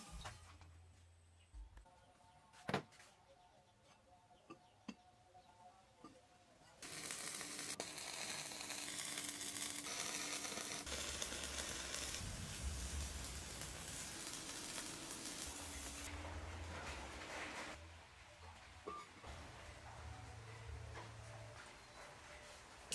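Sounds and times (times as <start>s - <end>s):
welding arc crackling: 6.8s - 16.1s.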